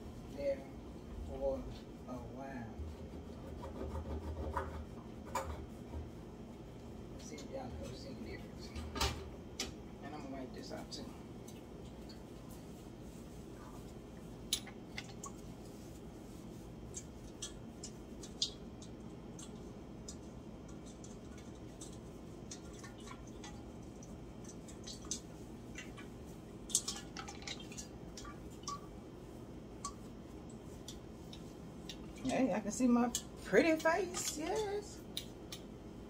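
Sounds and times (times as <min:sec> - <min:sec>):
light clicks and taps: 0:16.9 - 0:26.1, 0:29.8 - 0:32.4, 0:33.1 - 0:35.7.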